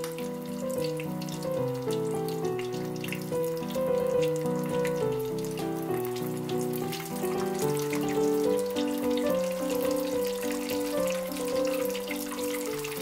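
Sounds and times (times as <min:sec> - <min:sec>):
plucked melody music: 0:00.0 - 0:13.0
prawns sizzling in hot oil: 0:00.0 - 0:13.0.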